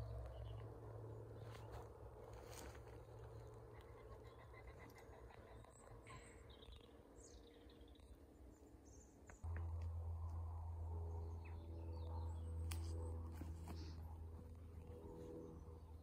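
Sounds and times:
faint bird calls: 0:03.2 - 0:07.9
low rumble: 0:09.3 - 0:16.0.

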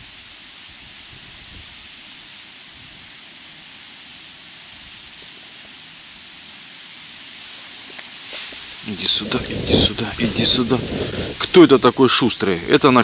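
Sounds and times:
strong wind hissing: 0:00.0 - 0:05.2, 0:05.8 - 0:13.0
wind buffeting microphone: 0:08.5 - 0:13.0.

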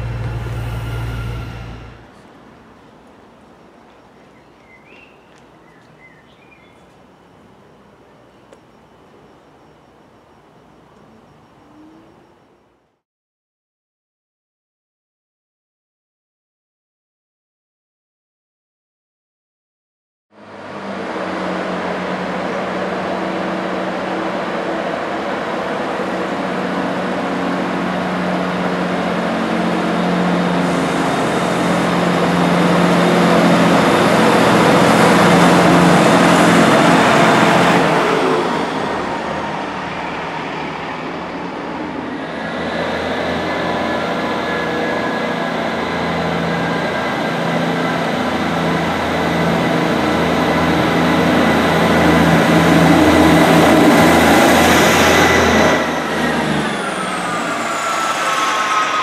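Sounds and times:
high whining tones: 0:00.0 - 0:02.2
diesel train engines running: 0:00.0 - 0:13.0, 0:20.4 - 0:59.0.

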